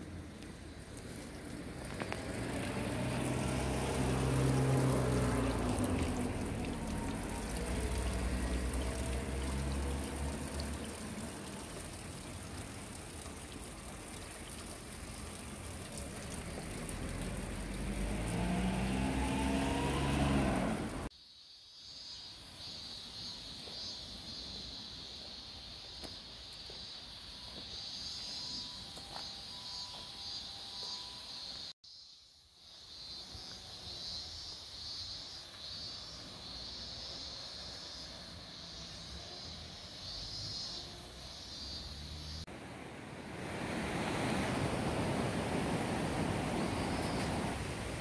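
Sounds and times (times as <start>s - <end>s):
approaching vehicle: 0.0s - 21.1s, 36.2s - 48.0s
vehicle engine passing: 1.5s - 13.1s, 15.0s - 21.1s.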